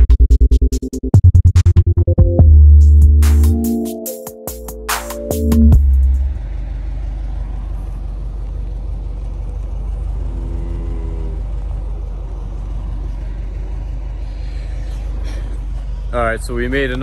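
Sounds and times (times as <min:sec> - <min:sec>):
vehicle engine rumbling: 0:04.6 - 0:17.0.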